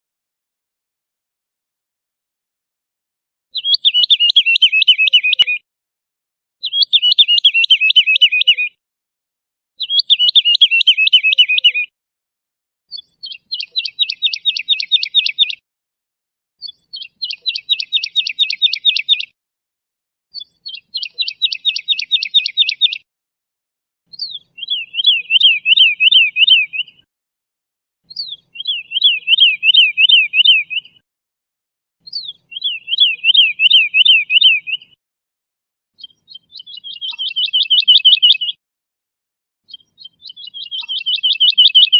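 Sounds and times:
woodlark singing: 3.6s - 5.6s, 6.6s - 8.8s, 9.8s - 11.9s, 12.9s - 15.6s, 16.6s - 19.4s, 20.3s - 23.0s, 24.1s - 27.1s, 28.1s - 31.0s, 32.0s - 35.0s, 36.0s - 38.6s, 39.7s - 41.9s.

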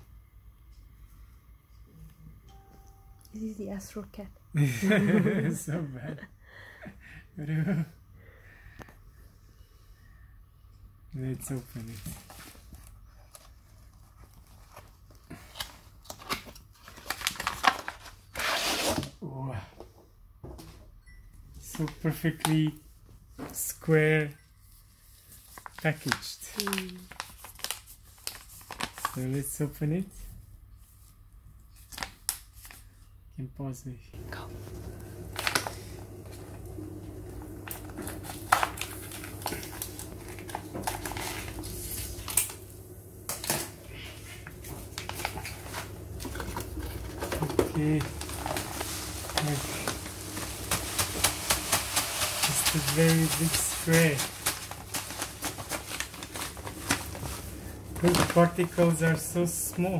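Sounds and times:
plastic crinkling: 11.5s - 18.3s, 25.2s - 29.5s, 34.3s - 59.5s.

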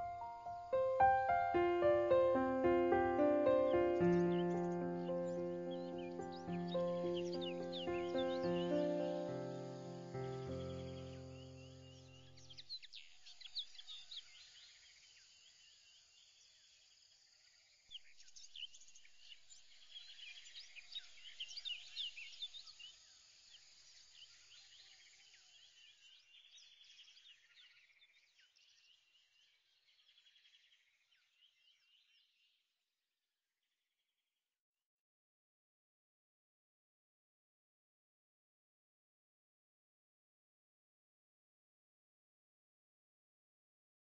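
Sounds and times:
faint birds chirping: 0.0s - 16.8s.

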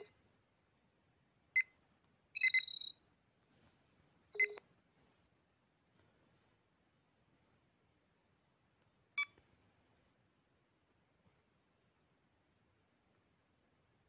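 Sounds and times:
electronic interface chirps: 2.4s - 3.0s.

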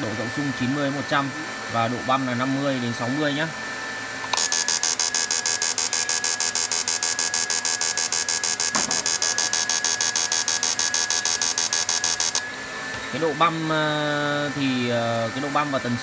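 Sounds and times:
thin steady whine: 0.0s - 16.0s
pulsed high buzz: 4.3s - 15.9s.

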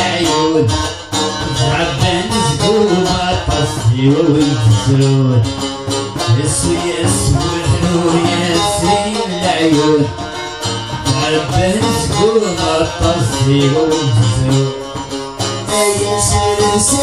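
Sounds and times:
long-necked banjo playing: 0.0s - 17.0s
mandole playing: 0.0s - 17.0s
person singing: 0.0s - 17.0s.

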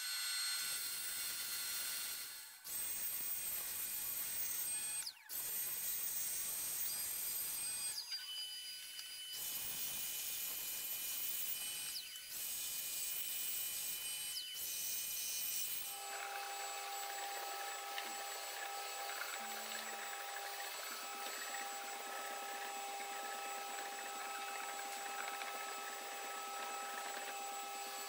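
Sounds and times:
power tool high whine: 0.0s - 28.0s.

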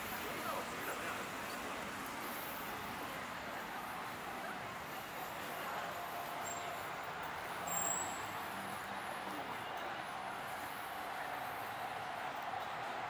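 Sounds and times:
city street ambience: 0.0s - 13.0s.

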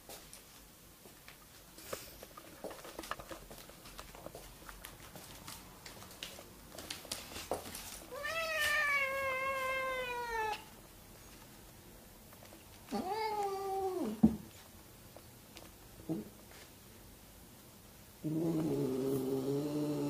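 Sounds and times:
cat meowing: 8.1s - 10.7s.

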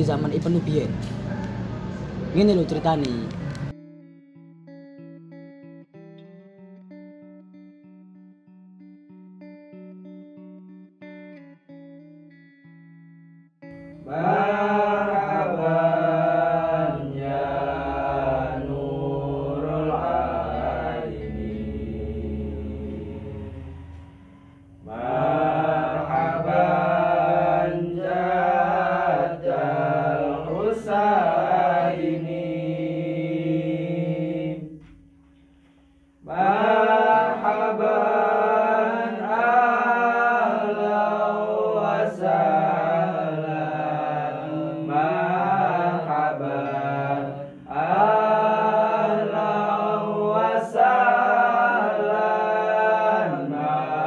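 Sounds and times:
men singing devotional chant: 14.0s - 24.0s, 24.9s - 34.8s, 36.2s - 54.0s.

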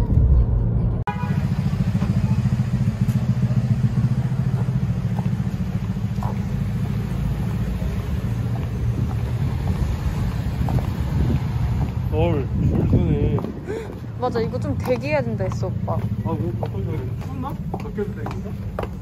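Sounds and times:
car engine idling: 1.1s - 12.3s.

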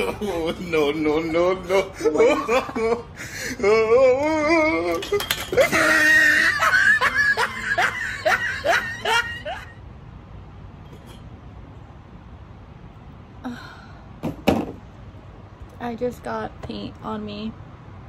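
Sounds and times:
woman squealing laughs: 1.2s - 3.1s, 5.6s - 9.8s
woman crying out: 5.6s - 7.2s.

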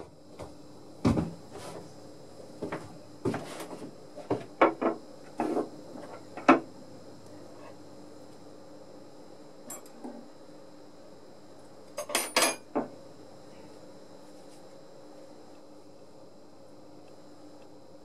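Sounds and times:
objects knocking on wooden bench: 0.4s - 1.4s, 2.6s - 6.7s.

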